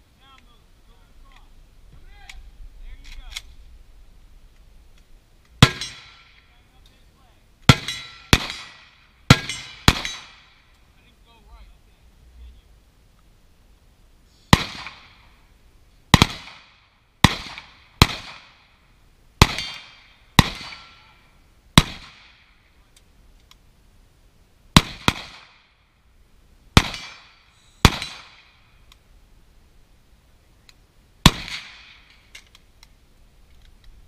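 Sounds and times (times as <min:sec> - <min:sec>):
rifle gunshots echoing: 0:05.6 - 0:06.6, 0:07.7 - 0:10.6, 0:14.5 - 0:15.3, 0:16.1 - 0:18.7, 0:19.4 - 0:21.2, 0:21.8 - 0:22.5, 0:24.8 - 0:25.6, 0:26.8 - 0:28.5, 0:31.2 - 0:32.1.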